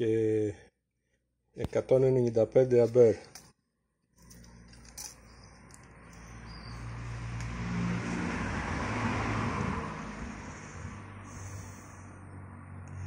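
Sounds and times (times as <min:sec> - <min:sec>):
vehicle engine and tyre noise: 0:04.2 - 0:13.0.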